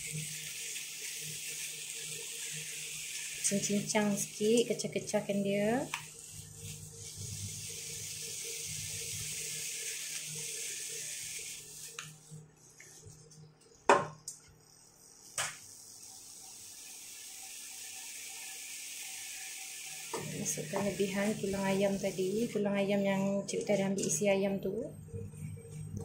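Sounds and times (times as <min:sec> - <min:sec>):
chicken sizzling in a wok: 0:00.0 - 0:12.4, 0:14.7 - 0:22.6
spatula in a wok: 0:00.0 - 0:13.4, 0:14.4 - 0:22.6.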